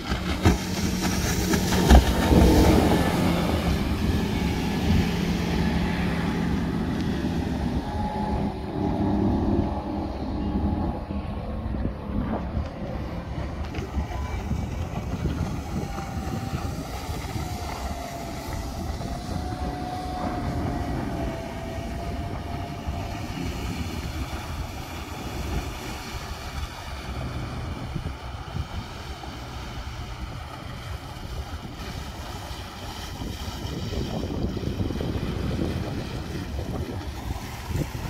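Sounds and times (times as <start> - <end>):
distant outboard engine whine: 0.0 - 38.0
wind buffeting microphone: 0.0 - 38.0.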